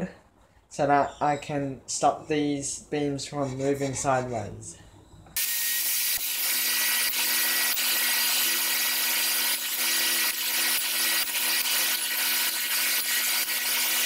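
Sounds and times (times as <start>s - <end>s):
table saw running: 5.4s - 14.0s.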